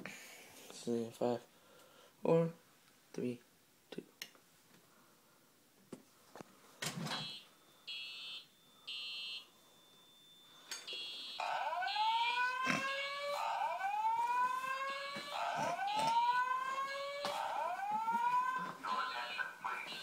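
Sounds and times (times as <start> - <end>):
fire alarm horn beeps: 7.2 - 13.3.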